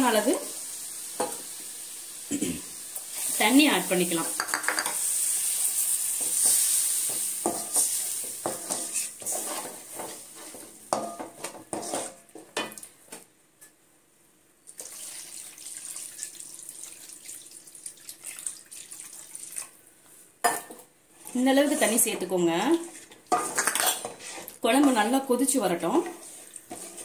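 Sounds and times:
hot liquid hissing: 0.0 - 9.4
wooden spatula scraping metal pan: 6.2 - 12.2, 21.3 - 25.1, 25.8 - 27.0
water pouring into pan: 14.7 - 19.8.

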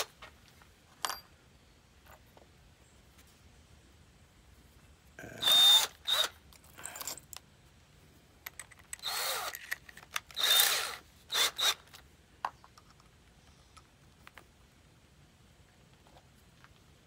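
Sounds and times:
power drill motor whining: 5.4 - 7.0, 9.0 - 9.6, 10.3 - 11.9.

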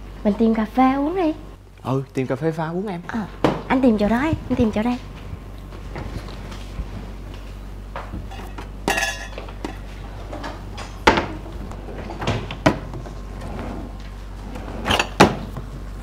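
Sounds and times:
dishes and cutlery clinking: 8.3 - 10.0.

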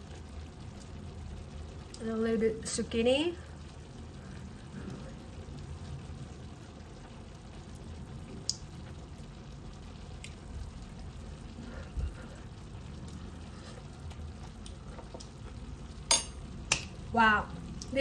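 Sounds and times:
spoon clicking on pot: 16.1 - 16.9.

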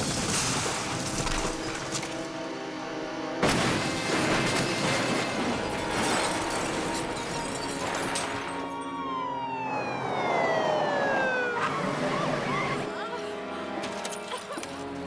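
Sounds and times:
crunching metal: 0.0 - 2.6, 3.4 - 9.0
music: 0.0 - 15.0
glass breaking: 3.4 - 8.8
tone sliding down in pitch: 9.1 - 12.9.

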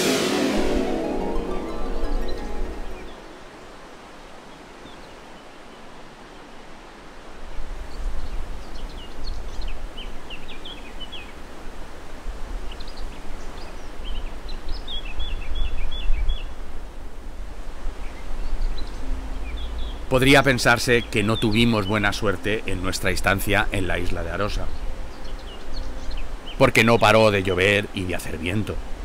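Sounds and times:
steady hiss: 0.0 - 29.0
small birds chirping: 1.6 - 6.6, 7.4 - 12.0, 12.6 - 16.7, 17.9 - 28.9
wind on microphone: 11.7 - 20.0.

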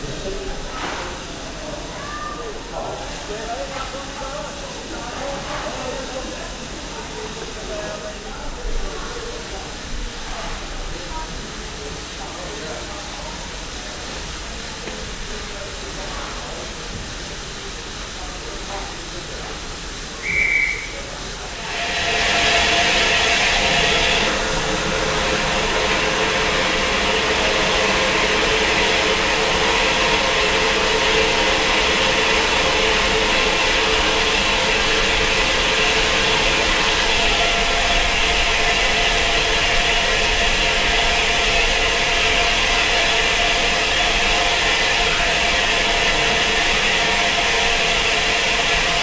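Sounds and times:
steam locomotive blowing off steam: 0.0 - 49.0
short high whistle: 20.2 - 21.2.

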